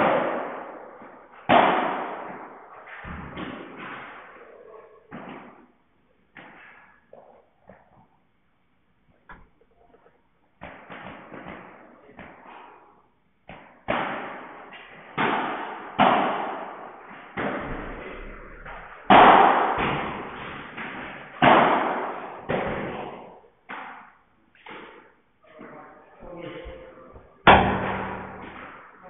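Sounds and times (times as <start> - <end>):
ball struck by rackets: 0.0 - 4.4, 5.1 - 5.7, 6.3 - 7.9, 10.6 - 12.8, 13.4 - 25.2, 27.1 - 29.0
ball rebounding off walls: 0.0 - 8.2, 9.2 - 29.0.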